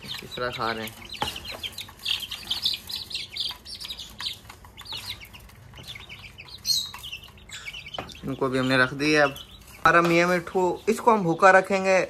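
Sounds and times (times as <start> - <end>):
chicks peeping: 0.0 - 12.0.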